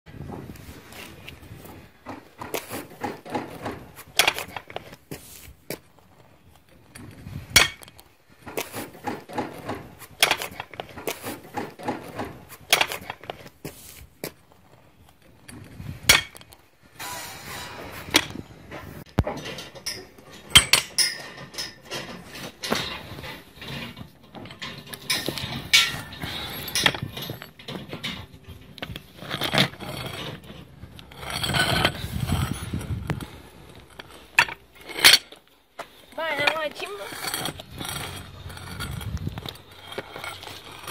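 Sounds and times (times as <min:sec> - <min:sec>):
metal pieces clinking on paving: 0:19.4 - 0:35.5, 0:36.2 - 0:40.9.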